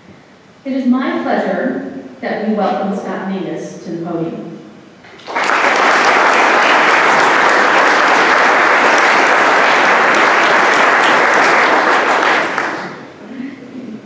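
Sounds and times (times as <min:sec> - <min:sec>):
audience applauding: 0:05.1 - 0:13.2.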